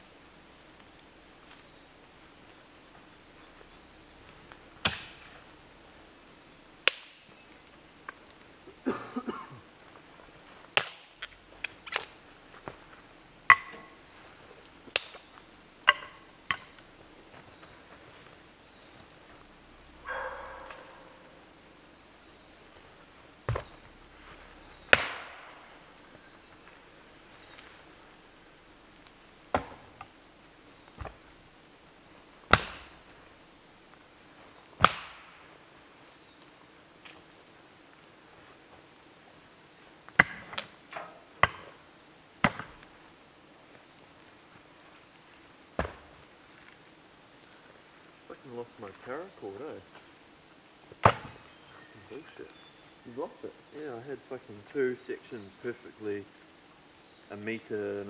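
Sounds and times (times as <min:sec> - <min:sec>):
firewood being chopped: 0:04.3 - 0:05.5, 0:06.8 - 0:08.4, 0:10.5 - 0:17.4, 0:23.4 - 0:26.8, 0:28.9 - 0:30.2, 0:30.9 - 0:31.2, 0:32.5 - 0:33.2, 0:34.7 - 0:35.6, 0:40.1 - 0:41.8, 0:42.4 - 0:42.9, 0:45.1 - 0:47.5, 0:50.9 - 0:51.6
blade chopping wood: 0:04.8 - 0:05.3, 0:06.9 - 0:07.2, 0:13.5 - 0:13.9, 0:24.8 - 0:25.6, 0:29.5 - 0:30.1, 0:32.5 - 0:33.0, 0:34.8 - 0:35.4, 0:40.2 - 0:41.7, 0:42.4 - 0:42.8, 0:51.0 - 0:51.4.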